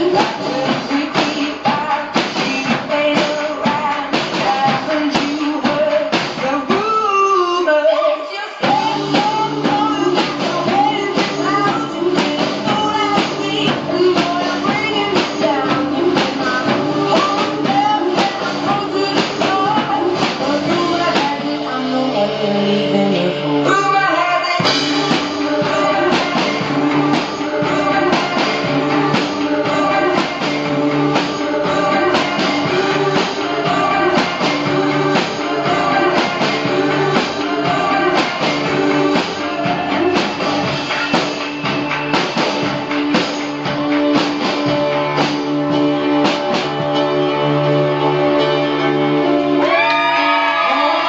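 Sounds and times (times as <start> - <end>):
drum kit hits: 0.0 - 6.9, 8.6 - 21.4, 24.6 - 47.0
person singing: 0.0 - 51.0
electric guitar: 24.6 - 51.0.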